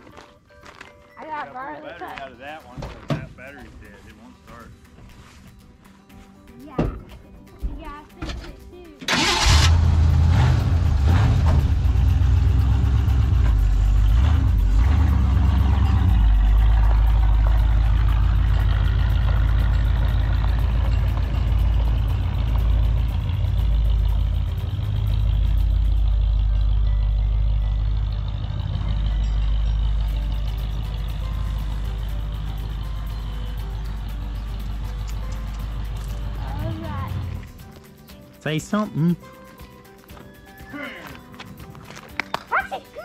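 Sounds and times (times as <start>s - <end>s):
truck engine starting and rumbling: 8.2s - 37.8s.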